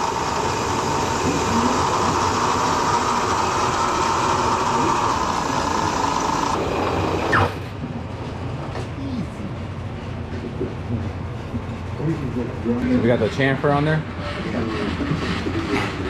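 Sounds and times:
milling machine drilling metal: 0.0s - 7.6s
continuous machine whine: 0.0s - 16.0s.

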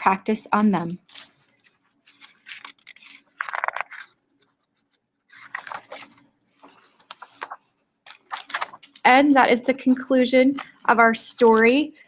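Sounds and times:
glossy book pages turning: 1.0s - 9.1s.

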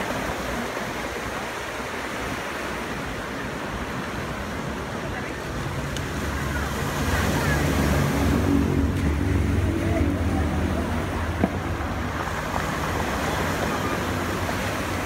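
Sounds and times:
surf washing over cobbles: 0.0s - 15.0s.

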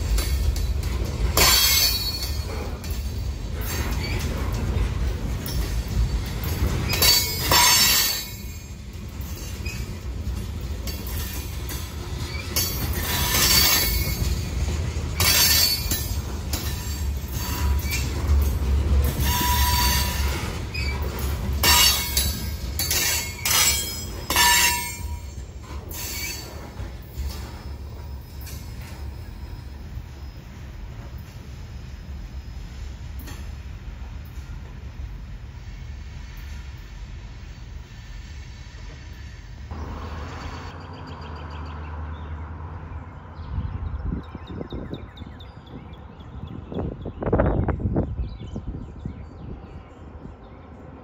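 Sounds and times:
freight train wheels rumbling: 0.0s - 51.0s
wheel squeal screeches: 3.6s - 4.6s, 9.3s - 10.0s, 16.8s - 18.4s, 19.0s - 30.6s.

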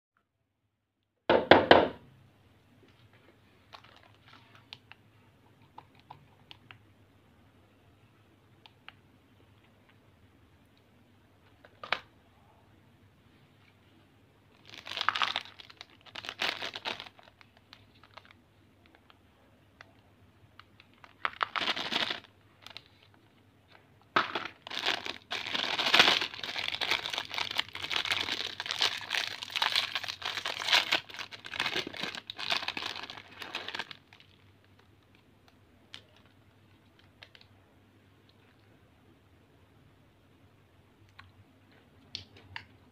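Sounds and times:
plastic wrapper crinkling and tearing: 3.6s - 5.1s, 14.5s - 19.2s, 19.8s - 37.5s.

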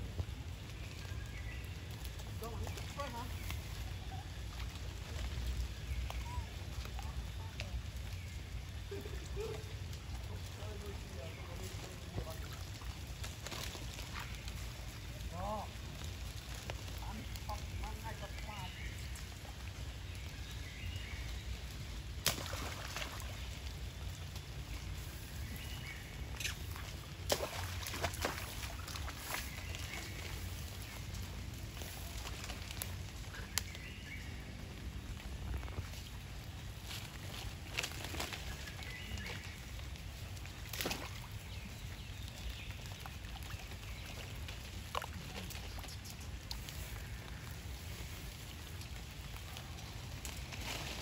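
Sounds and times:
water splashing and sloshing: 0.1s - 20.4s, 21.9s - 33.7s, 34.5s - 51.0s
splashes in muddy water: 22.2s - 23.6s, 26.3s - 30.3s, 40.6s - 41.6s
steady low rumble: 28.7s - 40.5s.

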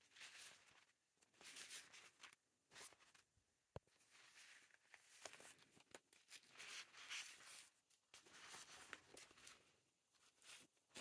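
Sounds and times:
paper napkins rustling: 3.9s - 11.0s.

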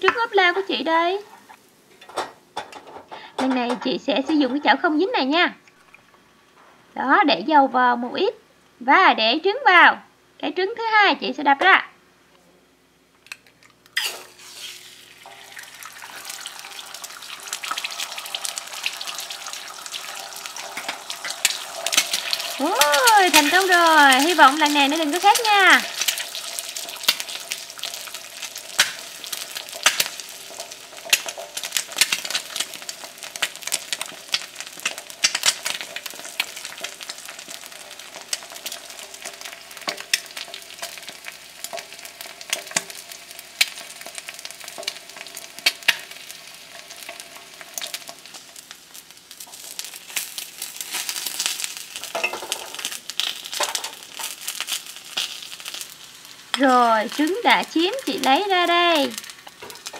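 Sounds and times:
oil crackling and popping: 13.2s - 59.9s
egg sizzling in oil: 13.4s - 59.9s.

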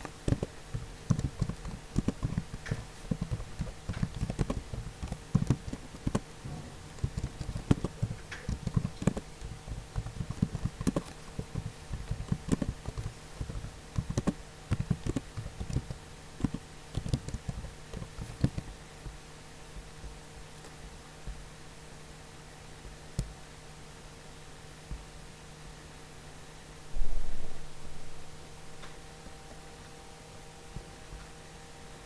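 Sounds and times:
keyboard typing clicks: 0.0s - 6.2s, 6.9s - 18.7s
faint steady hum: 0.0s - 32.0s.

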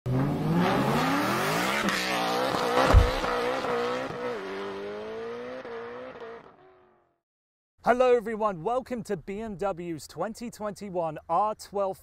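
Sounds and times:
car engine revving: 0.1s - 7.0s
low thump: 2.8s - 3.4s.

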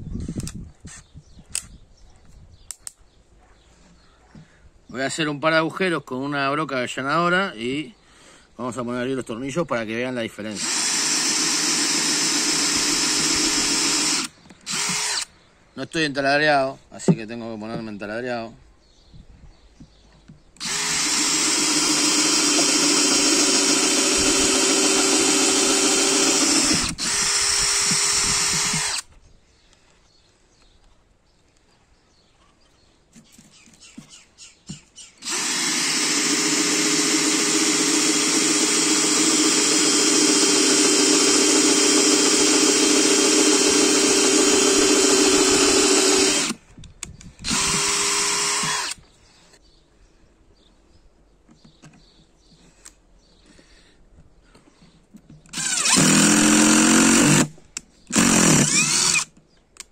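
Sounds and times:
cordless drill boring into wood: 10.5s - 15.3s, 20.6s - 29.1s, 35.2s - 46.6s, 47.4s - 49.0s, 55.5s - 59.3s.

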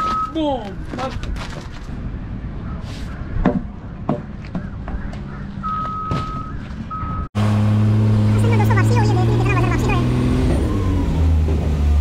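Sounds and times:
high electronic beep: 5.6s - 7.3s
vehicle engine running loudly: 7.4s - 12.0s.

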